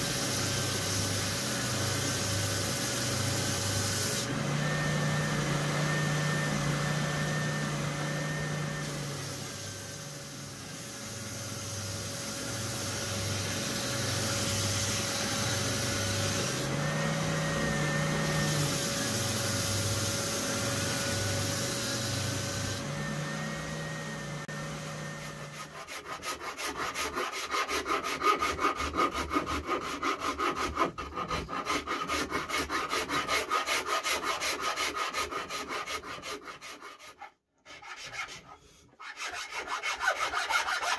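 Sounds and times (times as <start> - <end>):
spindle sander motor hum: 12.8 - 26.0
hand rasp strokes on wood: 25.3 - 40.9.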